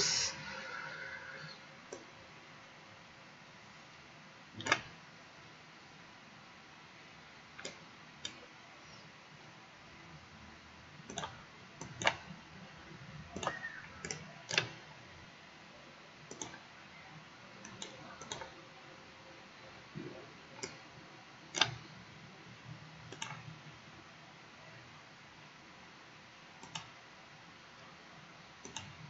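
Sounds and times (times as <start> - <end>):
low steady hiss: 0.0 - 29.0
computer mouse clicking: 4.6 - 5.0, 7.6 - 8.4, 11.1 - 12.4, 13.4 - 14.8, 16.3 - 16.7, 17.6 - 18.6, 20.6 - 20.8, 21.5 - 21.8, 23.1 - 23.5, 26.6 - 27.0, 28.6 - 29.0.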